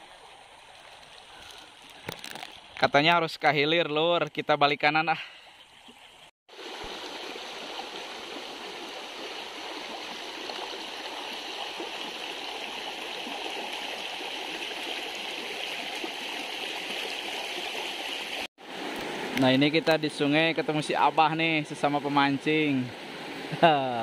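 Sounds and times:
river water rushing and gurgling: 6.5s - 23.6s.

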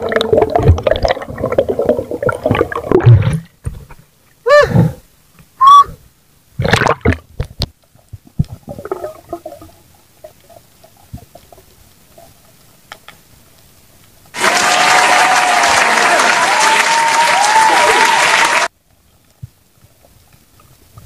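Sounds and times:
underwater thumps and gurgles: 0.0s - 4.1s, 6.6s - 11.7s
applause: 14.4s - 18.7s.

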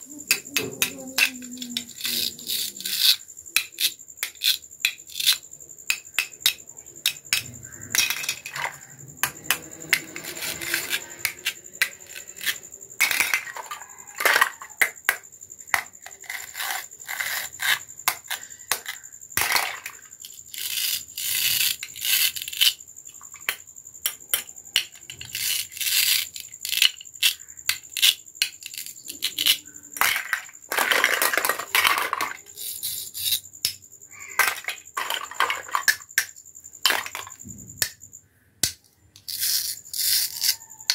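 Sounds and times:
plastic toy pieces clattering: 6.4s - 14.9s, 18.7s - 20.0s, 28.0s - 33.4s, 34.2s - 36.2s, 36.8s - 37.4s.

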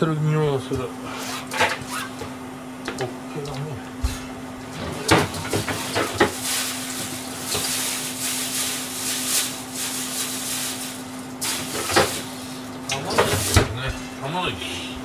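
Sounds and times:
constant low hum: 0.0s - 15.0s
knocks and clacks of kitchen items: 2.9s - 7.8s, 11.5s - 12.3s, 12.9s - 14.1s
fish sizzling on grill: 5.9s - 12.8s.

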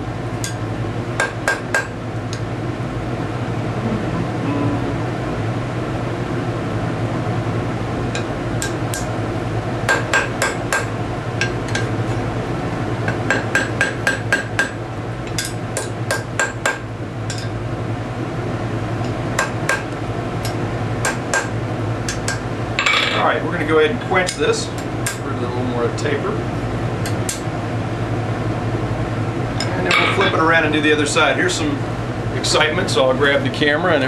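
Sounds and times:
low hum: 1.8s - 13.4s
hammer striking metal on anvil: 9.9s - 11.9s, 13.1s - 14.8s.

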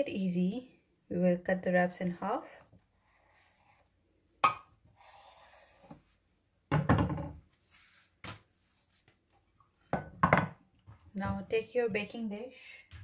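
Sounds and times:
thump on cutting board: 6.7s - 7.4s.

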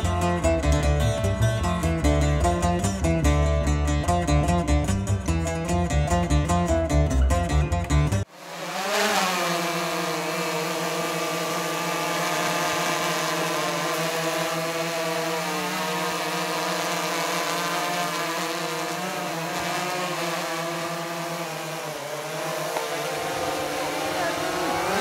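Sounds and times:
vehicle engine running: 7.8s - 25.0s.

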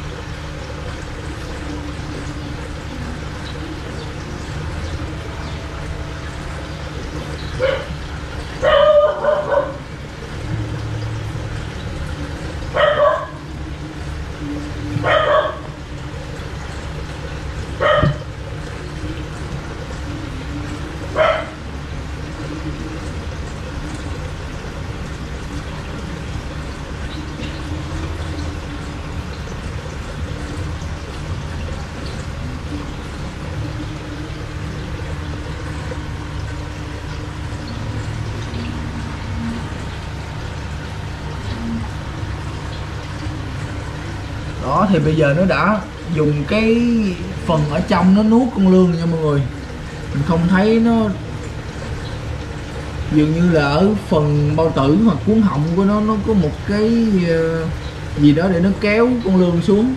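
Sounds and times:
steady low hum: 0.0s - 59.9s
dog barking: 7.6s - 7.9s, 8.6s - 9.8s, 12.8s - 13.4s, 15.0s - 15.7s, 17.8s - 18.2s, 21.2s - 21.6s.

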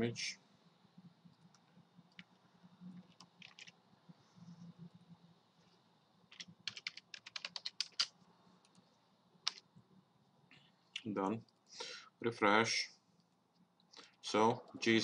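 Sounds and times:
keyboard typing: 3.0s - 3.8s, 6.3s - 8.1s.

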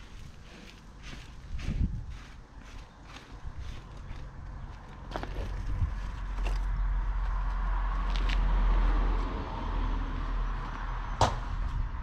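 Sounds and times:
steady low rumble: 0.0s - 12.0s
vehicle passing: 3.6s - 12.0s.

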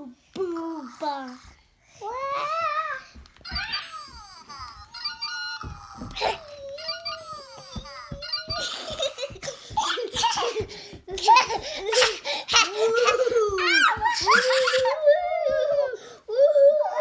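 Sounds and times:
young children laughing: 3.4s - 16.0s.

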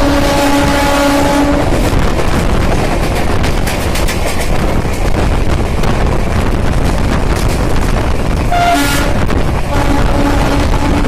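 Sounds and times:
train horn blast: 0.0s - 1.9s, 8.5s - 11.0s
rushing air: 0.0s - 11.0s
train wheels rumbling on track: 0.0s - 11.0s.

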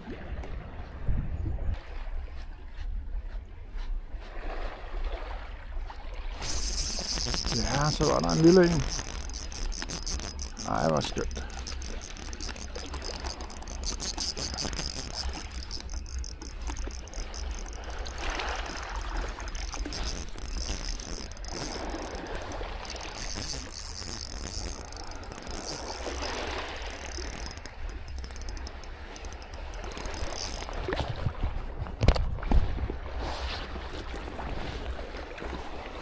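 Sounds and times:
wind rumble on microphone: 0.0s - 8.0s, 30.5s - 35.6s
soft water sounds: 0.0s - 36.0s
fishing reel clicking: 6.2s - 31.1s, 34.0s - 34.4s.

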